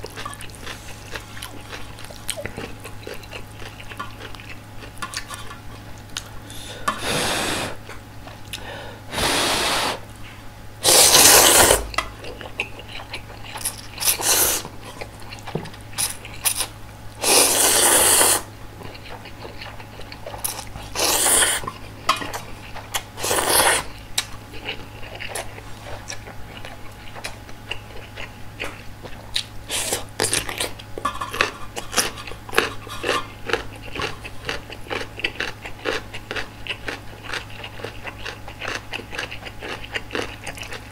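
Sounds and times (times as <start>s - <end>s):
chewing smacks and clicks: 0.0s - 6.3s, 24.0s - 30.9s, 33.5s - 40.9s
noodle slurping: 9.1s - 10.0s, 10.8s - 12.0s, 13.5s - 14.7s, 16.0s - 18.5s, 20.4s - 21.6s, 23.0s - 23.9s.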